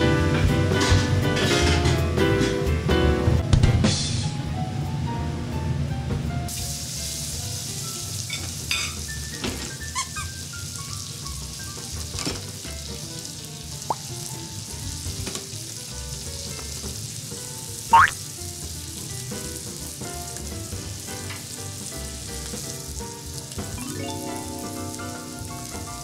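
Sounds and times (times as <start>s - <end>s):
steak sizzling on griddle: 6.5s - 26.0s
sharp pitched sound: 17.9s - 18.2s.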